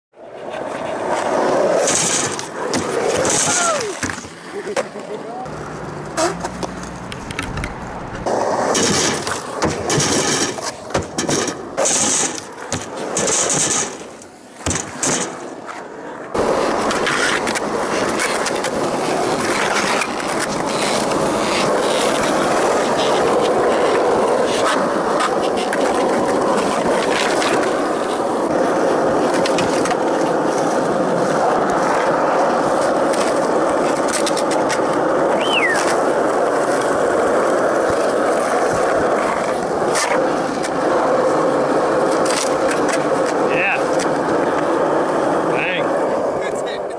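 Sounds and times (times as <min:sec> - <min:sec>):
skateboard wheels rolling: 0:00.2 - 0:46.9
skateboard clacks: 0:00.4 - 0:46.9
short rising squeal: 0:05.5 - 0:07.1, 0:35.4 - 0:35.9.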